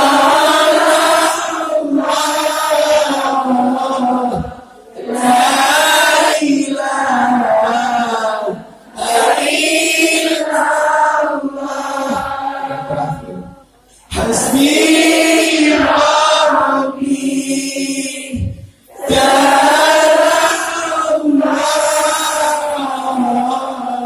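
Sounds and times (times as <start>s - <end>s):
man singing into a microphone: 0.0s - 8.6s, 14.1s - 24.0s
crowd of women singing: 0.0s - 24.0s.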